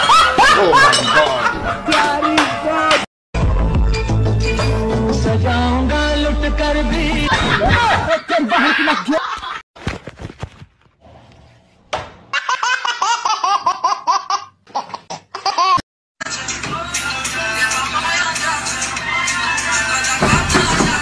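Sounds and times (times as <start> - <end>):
loud voices: 0.0 - 3.1
baby laughing: 12.4 - 15.8.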